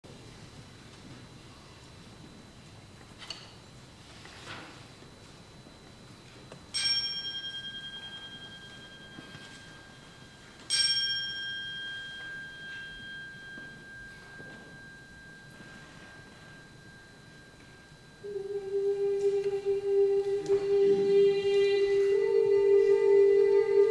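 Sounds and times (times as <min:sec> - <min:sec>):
antique cymbal ringing: 0:06.6 - 0:23.9.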